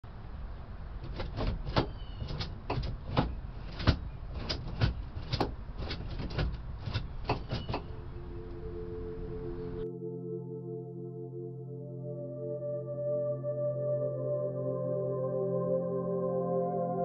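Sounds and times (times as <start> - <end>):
gear shifter clicking and clunking: 1.0 - 7.9.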